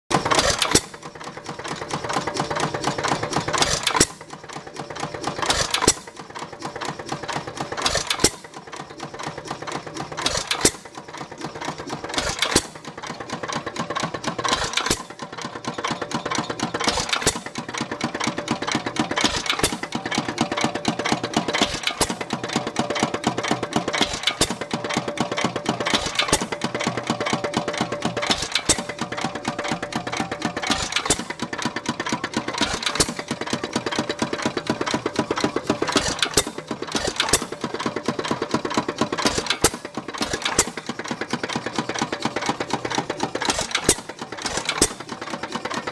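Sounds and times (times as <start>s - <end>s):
engine firing stroke: 0.1s - 45.9s
engine parts clattering: 0.1s - 45.9s.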